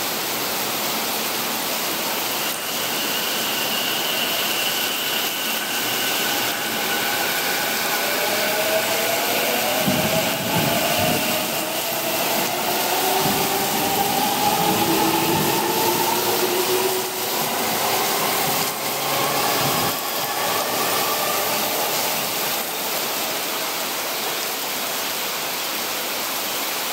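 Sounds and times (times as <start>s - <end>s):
heavy rain hiss: 0.0s - 26.9s
electric train motor whine: 2.3s - 23.9s
train wheels knocking on rails: 9.6s - 11.9s.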